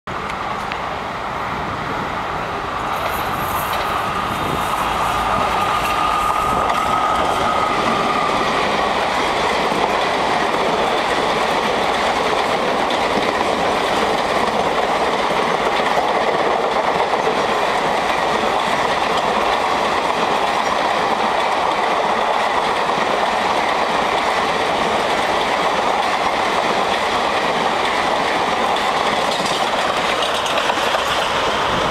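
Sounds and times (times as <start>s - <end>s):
locomotive high whine: 0.1s - 12.2s
train wheels clickety-clack: 2.8s - 31.9s.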